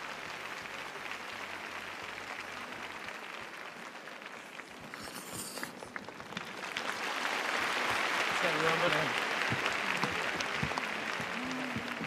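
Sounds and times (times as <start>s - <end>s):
arena crowd applauding: 0.0s - 12.0s.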